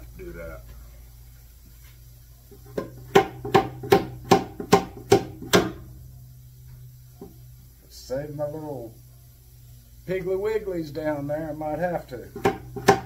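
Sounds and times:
hammer striking a wooden box: 2.8s - 5.8s, 12.4s - 13.0s.

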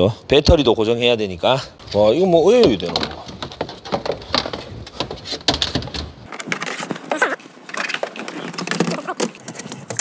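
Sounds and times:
tools and parts clicking and rattling: 2.6s - 10.0s.

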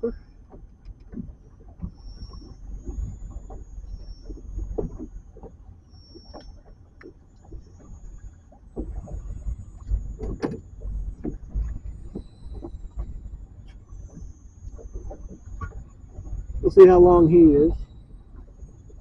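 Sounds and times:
knocks and clunks: 8.7s - 13.3s.

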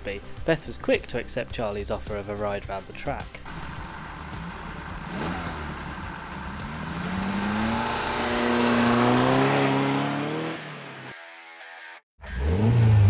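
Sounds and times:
car engine accelerating: 3.5s - 11.1s.

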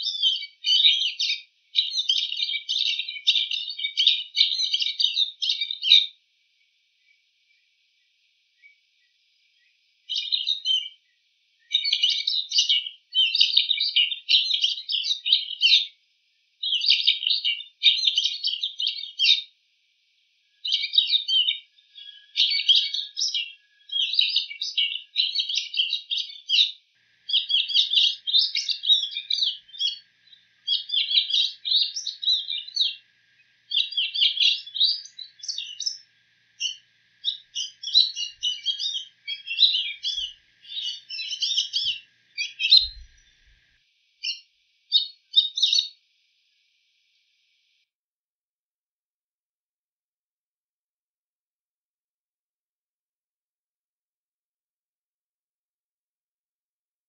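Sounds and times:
shrike singing rapid chatter: 27.2s - 43.6s.

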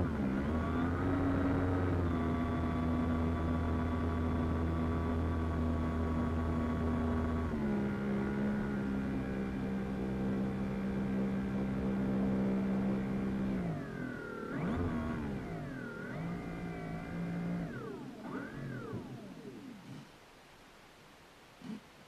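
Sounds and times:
model plane motor and propeller hum: 0.0s - 20.2s.

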